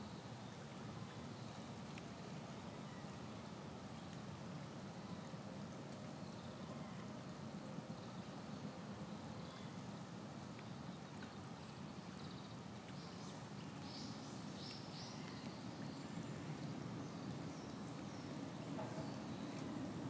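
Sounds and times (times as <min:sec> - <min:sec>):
outdoor background noise: 0:00.0 - 0:20.0.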